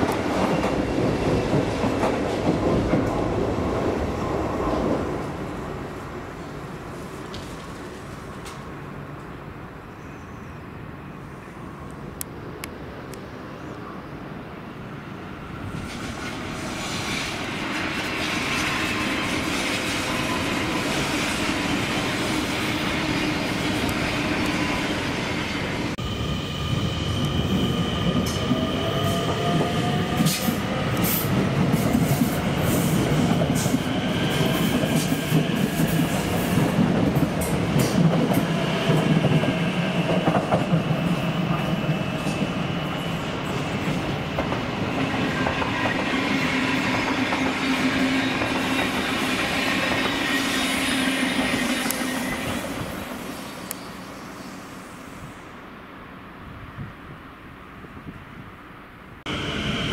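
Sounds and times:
train wheels rumbling: 0:00.0 - 0:09.3, 0:15.5 - 0:55.0
wheels squealing on rails: 0:15.4 - 0:55.6.

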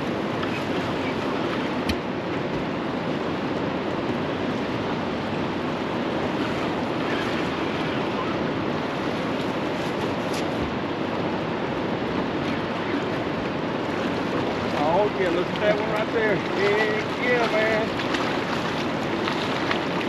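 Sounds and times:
fast-flowing river current: 0:00.0 - 0:20.0
water slapping against boat: 0:00.0 - 0:20.0.

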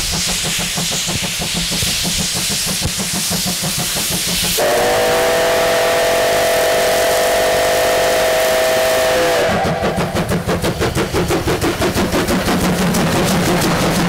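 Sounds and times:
steam hissing: 0:00.0 - 0:14.0
steam locomotive exhaust chuffs: 0:00.0 - 0:14.0
steam whistle blast: 0:04.6 - 0:10.2.

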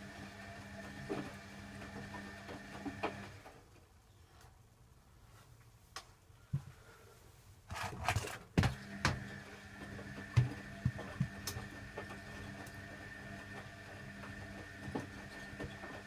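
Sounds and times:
washing machine motor humming: 0:00.0 - 0:03.6, 0:08.6 - 0:16.0.

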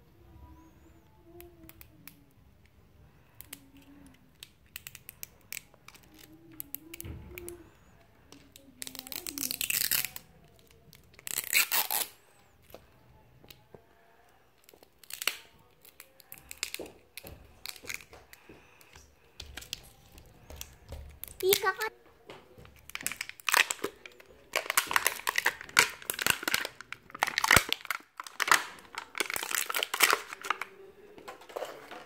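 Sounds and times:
plastic film crackling: 0:08.3 - 0:12.3, 0:14.6 - 0:21.9, 0:22.8 - 0:32.0
plastic film ripping: 0:08.8 - 0:10.2, 0:11.0 - 0:12.3, 0:14.8 - 0:16.8, 0:22.8 - 0:30.8.

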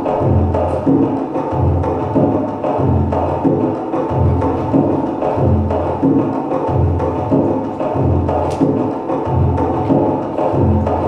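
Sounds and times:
steady low beat: 0:00.0 - 0:11.0.

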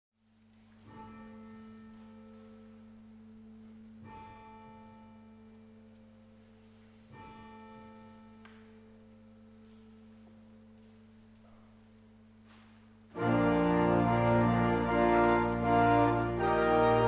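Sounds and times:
church bell tolling: 0:00.8 - 0:12.3.

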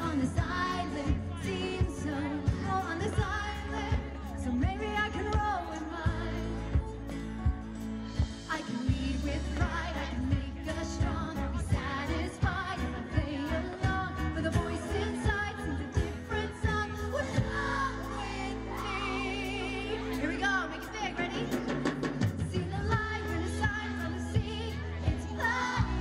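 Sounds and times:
drums keeping steady beat: 0:00.0 - 0:19.6, 0:20.8 - 0:26.0
electric and acoustic guitars: 0:00.0 - 0:26.0
keyboard: 0:00.0 - 0:26.0
person singing: 0:00.0 - 0:26.0.

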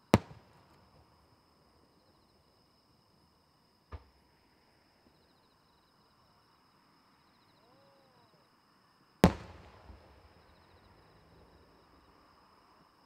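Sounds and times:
insects chirping: 0:00.0 - 0:13.0
small firework pop: 0:00.1 - 0:01.1, 0:03.9 - 0:04.2, 0:09.2 - 0:10.2.

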